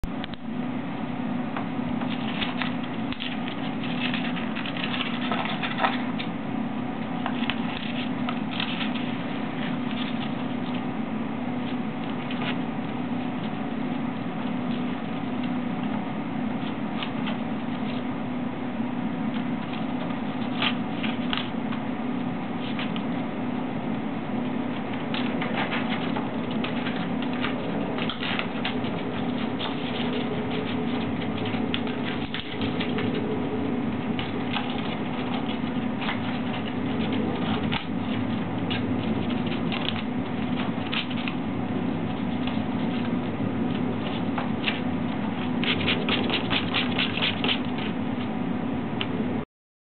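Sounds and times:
steady low hum: 0.0 - 49.4
bird tearing and chewing paper: 2.0 - 6.3, 7.2 - 10.8, 19.3 - 21.6, 24.7 - 48.0.

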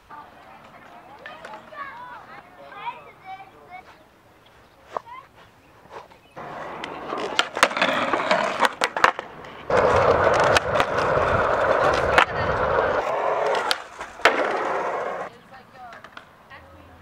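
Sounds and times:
skateboard wheels rolling on concrete: 0.0 - 17.0
skateboard clacks: 0.3 - 2.9, 6.4 - 16.3
skateboard scraping concrete ledge: 6.4 - 15.3.

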